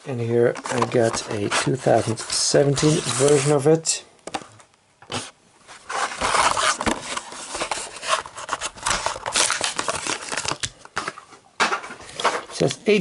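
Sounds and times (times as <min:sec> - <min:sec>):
cardboard tearing: 0:05.1 - 0:10.7.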